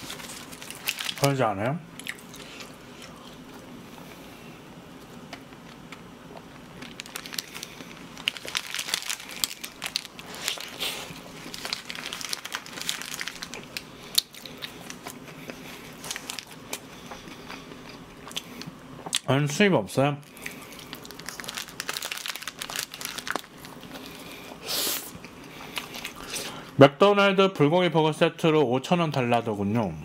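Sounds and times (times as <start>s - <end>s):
paper wrapper crinkling: 0.0s - 1.4s, 6.6s - 15.2s, 15.9s - 16.6s, 20.2s - 24.2s.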